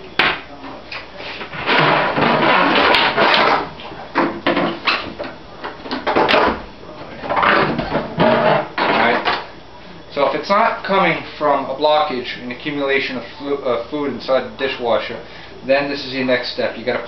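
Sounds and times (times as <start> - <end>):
plastic hose scraping against cabinet: 1.3 - 3.7, 7.4 - 9.2.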